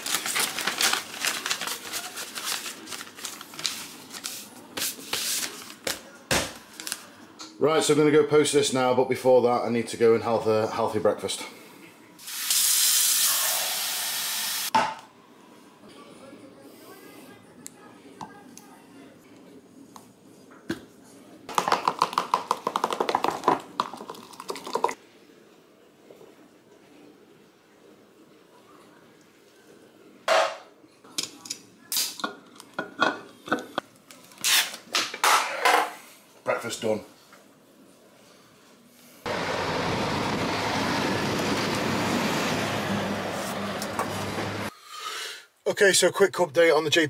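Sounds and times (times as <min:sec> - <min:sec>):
paper rustling and crinkling: 0:00.0 - 0:07.1
food stirred in plastic cup: 0:21.5 - 0:25.0.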